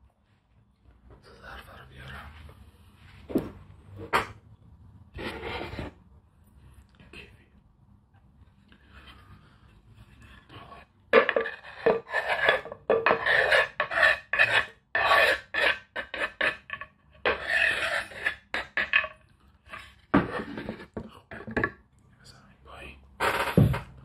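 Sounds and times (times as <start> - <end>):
knife scraping on cutting board: 11.2 - 21.0.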